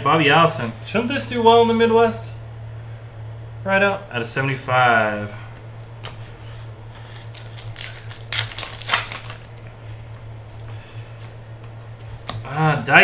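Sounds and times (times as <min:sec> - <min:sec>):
low electrical hum: 0:00.0 - 0:13.0
foil wrapper crinkling: 0:06.9 - 0:09.7.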